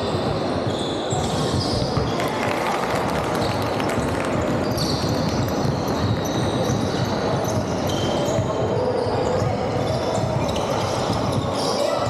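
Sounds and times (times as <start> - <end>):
sneaker squeaks: 0.0 - 2.4, 3.3 - 12.0
hall hubbub: 0.0 - 12.0
basketball bouncing on wooden floor: 3.4 - 11.6.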